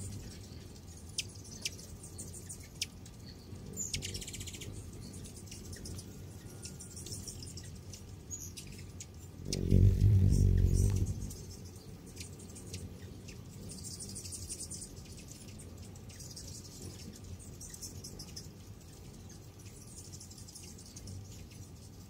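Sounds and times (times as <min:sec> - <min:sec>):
hummingbirds chittering: 0:00.0 - 0:22.0
steady low hum: 0:00.0 - 0:22.0.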